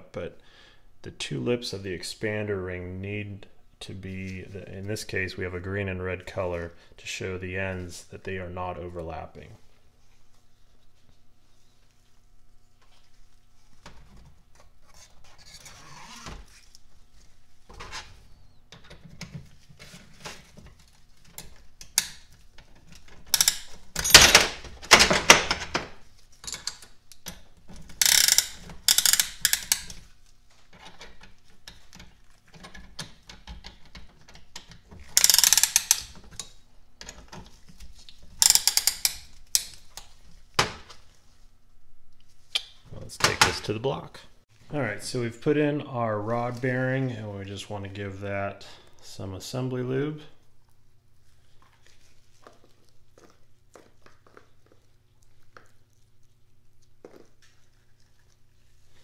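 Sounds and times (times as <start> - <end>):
rapid ratchet clicks: 23.3 - 24.3, 28.0 - 30.0, 35.2 - 36.1, 38.4 - 39.8
metal parts clinking: 23.3 - 24.6, 28.0 - 30.0, 35.2 - 36.2, 38.4 - 39.9.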